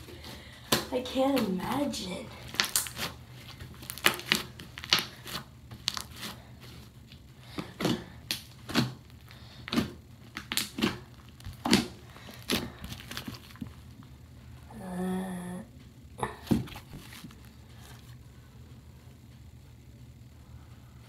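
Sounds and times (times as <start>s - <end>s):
slime popping and squelching: 2.4s - 6.4s, 7.1s - 13.8s, 16.4s - 18.0s.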